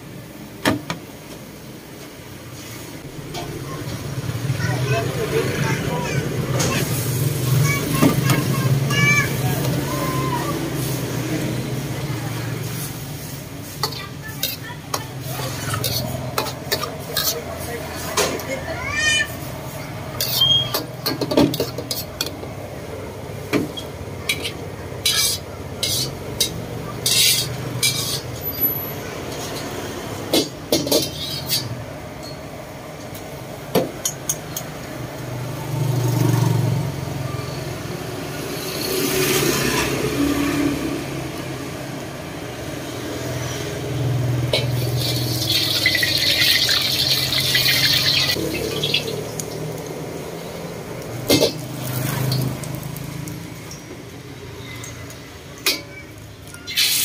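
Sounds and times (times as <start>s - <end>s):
ladle clanking against wok: 13.7s - 18.5s, 20.1s - 22.5s, 23.4s - 28.4s, 29.2s - 32.5s, 44.4s - 49.6s
sizzling hiss: 44.0s - 53.9s, 56.7s - 57.0s.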